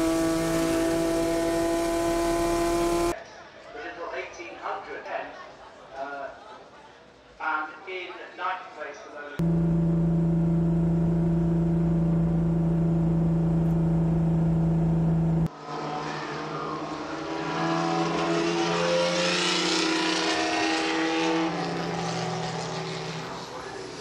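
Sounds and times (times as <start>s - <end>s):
racing car engine in cockpit: 0.0s - 3.2s, 9.4s - 24.0s.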